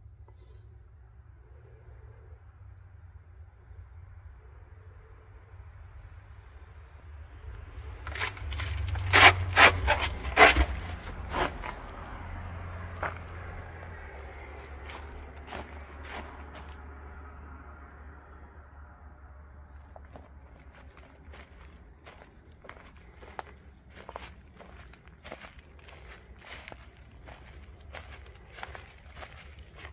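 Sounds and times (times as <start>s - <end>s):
footsteps: 7.8s - 12.2s, 12.9s - 16.8s, 20.0s - 29.9s
footsteps on leaf-covered path: 7.8s - 12.2s, 12.9s - 16.8s, 20.0s - 29.9s.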